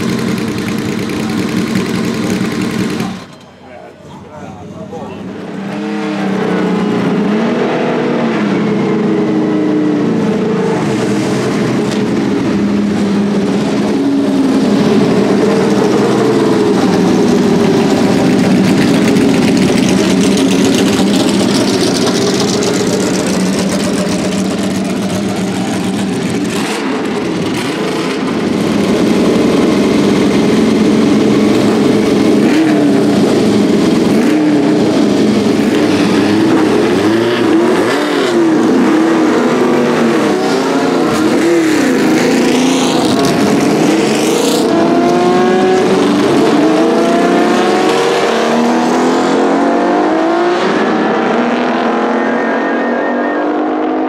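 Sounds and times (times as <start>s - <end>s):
racing car engines at low revs: 0.0s - 3.3s, 4.0s - 54.0s.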